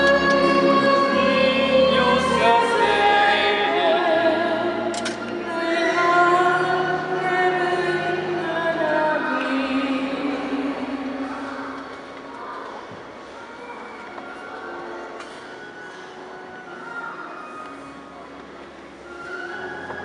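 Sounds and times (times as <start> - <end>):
choir singing religious song: 0.0 - 4.9.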